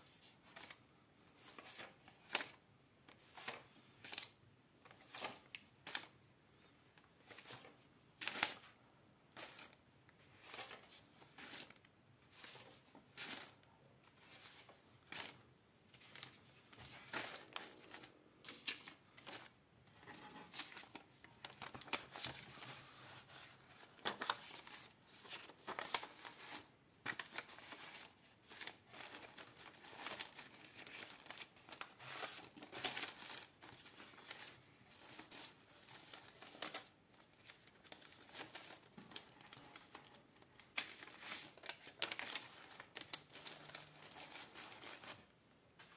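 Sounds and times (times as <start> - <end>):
banknotes rustling as counted: 0.0 - 6.2, 7.2 - 45.9.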